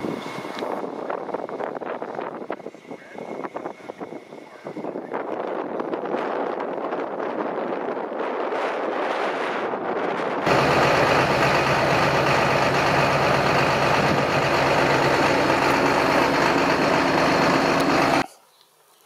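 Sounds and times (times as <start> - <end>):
wind on microphone: 0.0 - 10.5
tractor diesel engine running: 10.4 - 18.2.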